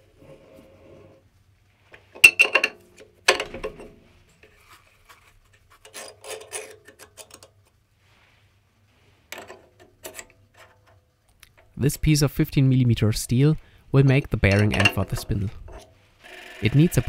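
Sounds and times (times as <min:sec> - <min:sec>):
metal on metal clicks and scrapes: 0:01.9 - 0:07.8, 0:09.3 - 0:11.8, 0:14.3 - 0:16.0.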